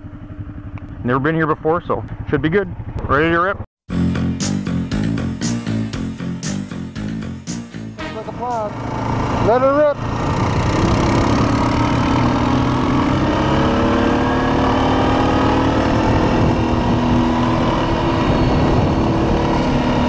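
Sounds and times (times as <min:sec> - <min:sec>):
quad bike engine under throttle: 0:00.0 - 0:03.1, 0:08.3 - 0:20.0.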